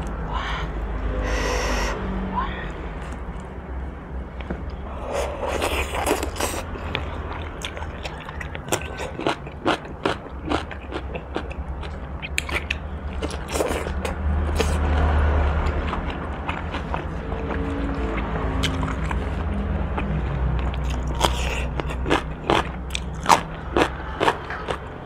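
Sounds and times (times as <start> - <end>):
chewing and lip smacking: 5.2 - 14.9, 15.6 - 24.9.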